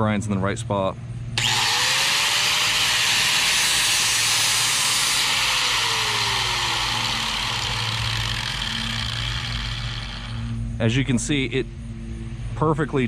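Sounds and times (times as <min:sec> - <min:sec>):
angle grinder grinding steel: 0:01.4 - 0:10.6.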